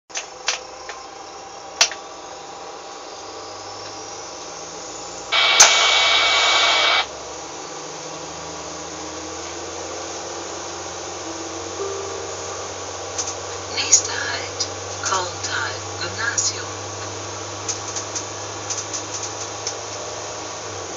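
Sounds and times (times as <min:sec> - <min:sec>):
loud hissing burst with tone: 0:02.7 - 0:07.8, 0:10.2 - 0:20.9
sharp clicks: 0:05.4 - 0:07.1
diesel railcar running on track: 0:08.3 - 0:20.9.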